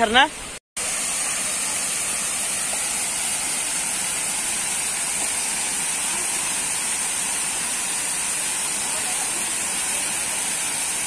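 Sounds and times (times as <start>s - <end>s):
waterfall rushing: 0.8s - 11.0s.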